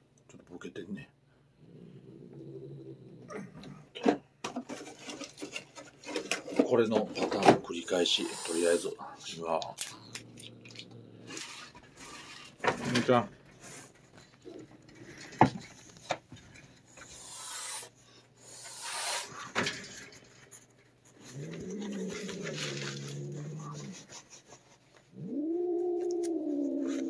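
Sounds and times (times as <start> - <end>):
cat growling: 1.6 - 4.0, 7.9 - 12.2, 17.0 - 19.4, 21.2 - 24.2, 25.1 - 27.0.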